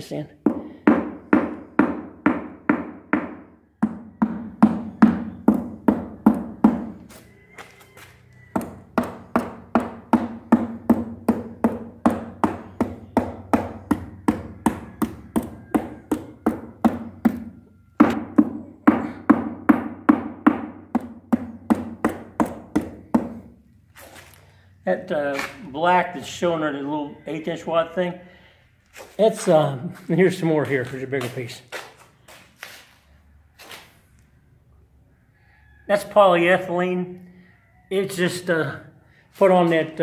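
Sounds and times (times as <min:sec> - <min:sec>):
hammer tapping on concrete: 0:00.4 - 0:07.7, 0:08.4 - 0:23.6.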